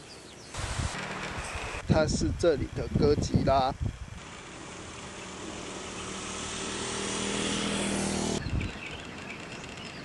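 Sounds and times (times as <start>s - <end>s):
motor scooter passing: 0.6s - 1.9s, 4.0s - 10.0s.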